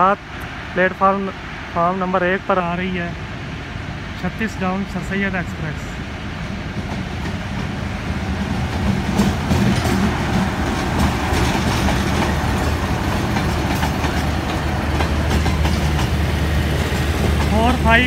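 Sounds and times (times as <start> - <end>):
locomotive engine hum: 0.0 - 18.0
train wheels clacking over rail joints: 8.4 - 18.0.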